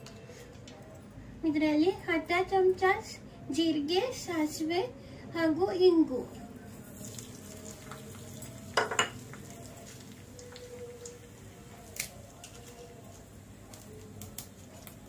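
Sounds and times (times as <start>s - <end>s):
seeds sizzling in hot oil: 6.7s - 15.0s
kitchenware knocking: 8.8s - 9.2s.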